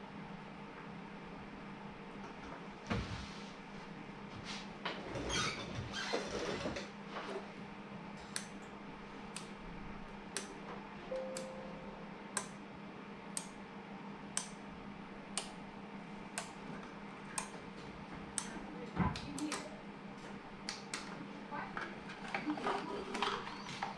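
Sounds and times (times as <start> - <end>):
faint low hum: 7.2 - 23.9.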